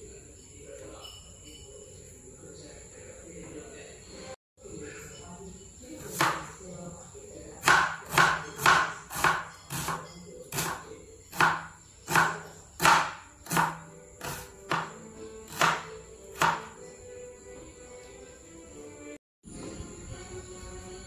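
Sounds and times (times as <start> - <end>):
knife chopping on plastic board: 6.0 - 6.5, 7.6 - 16.8.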